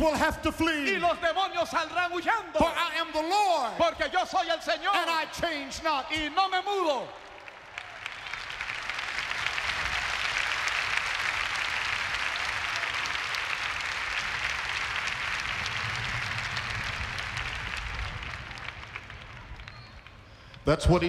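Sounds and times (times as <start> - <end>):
congregation applauding: 6.4 - 21.0.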